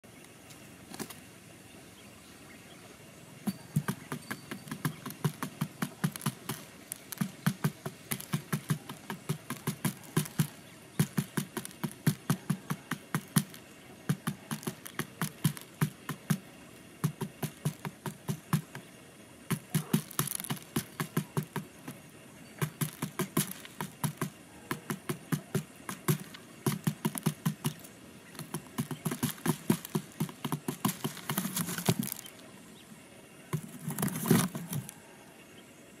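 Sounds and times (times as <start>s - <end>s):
beaks tapping on cardboard: 3.4s - 32.4s, 33.5s - 35.0s
scuffle and thump: 28.4s - 32.3s, 33.6s - 34.9s.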